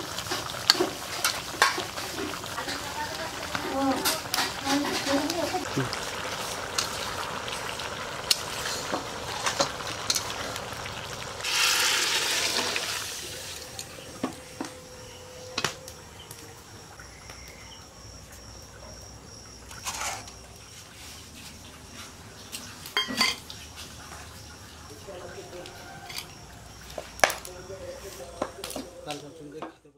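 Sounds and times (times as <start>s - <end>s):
food bubbling and sizzling in wok: 0.0s - 15.2s, 16.0s - 29.2s
loud hiss: 11.4s - 13.7s.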